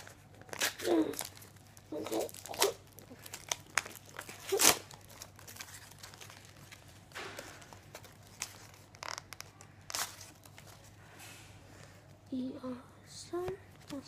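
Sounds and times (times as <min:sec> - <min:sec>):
foil wrapper crinkling: 0:00.0 - 0:11.0
cards rustling: 0:00.0 - 0:12.2.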